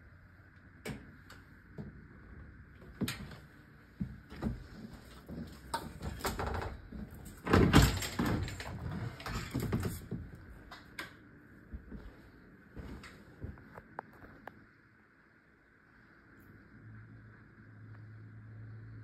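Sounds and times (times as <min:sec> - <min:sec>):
closet doors knocking and clicking: 0:05.8 - 0:10.4.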